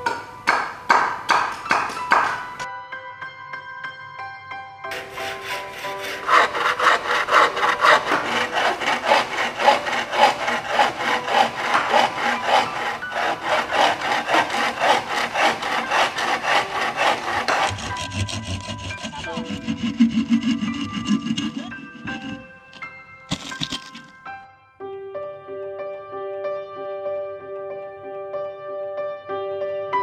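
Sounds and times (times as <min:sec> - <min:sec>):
hand saw cutting bamboo: 0:04.9 - 0:24.2.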